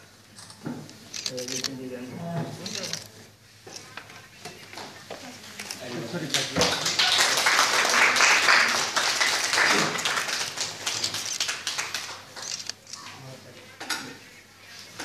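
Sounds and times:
people chattering: 1.0 - 15.0
hands clapping: 6.2 - 12.8.

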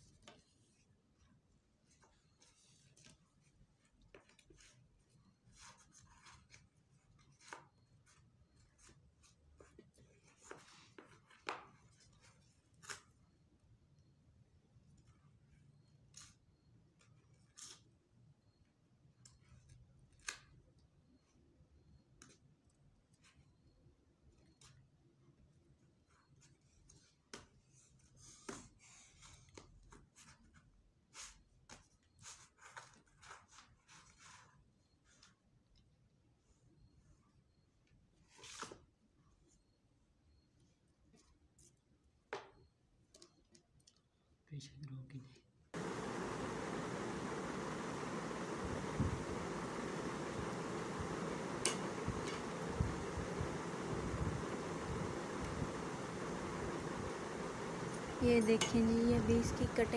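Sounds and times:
light taps of sticks: 45.8 - 59.0.

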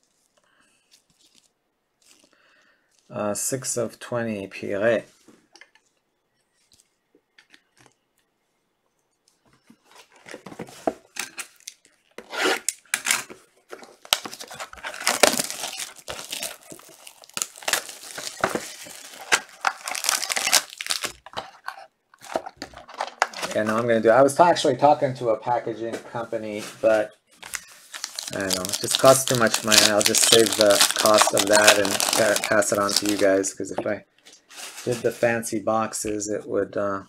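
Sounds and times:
wrapper tearing and crinkling: 13.9 - 23.7, 27.4 - 33.4.

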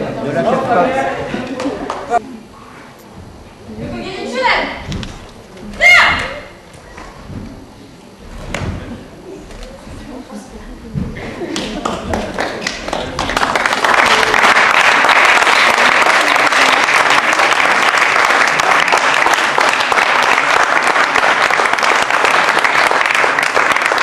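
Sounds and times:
audience applauding: 11.5 - 24.0.

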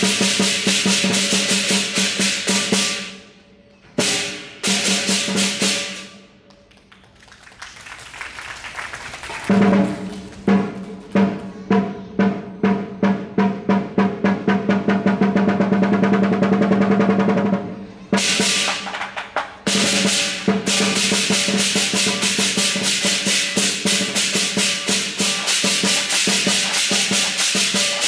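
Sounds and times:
drum strokes: 0.0 - 3.2, 9.5 - 28.0
cymbal clashes: 19.7 - 28.0.

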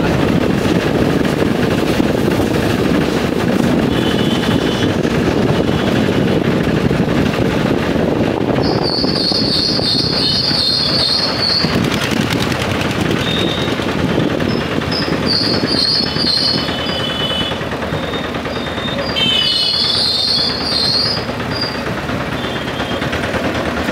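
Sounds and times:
van engine rattling drone: 0.0 - 23.9
high-pitched squeal: 8.6 - 11.8.

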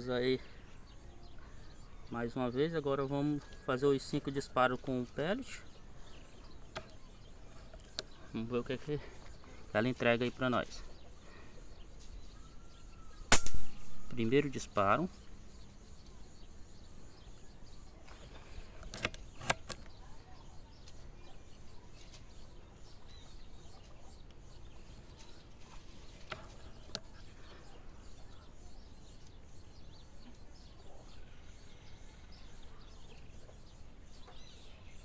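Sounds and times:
faint bird calls: 0.0 - 35.0
sharp clicks: 7.7 - 8.2.

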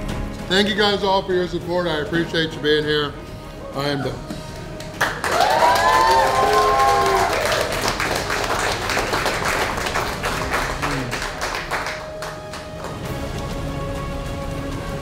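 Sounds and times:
crowd clapping: 4.6 - 13.3
crowd cheering: 5.0 - 12.7.

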